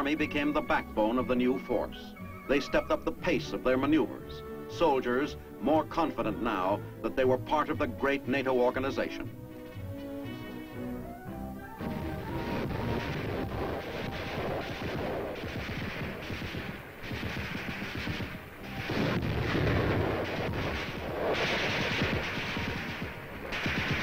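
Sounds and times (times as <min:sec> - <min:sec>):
explosions: 0:11.8 - 0:24.0
rifle and machine-gun fire: 0:11.9 - 0:24.0.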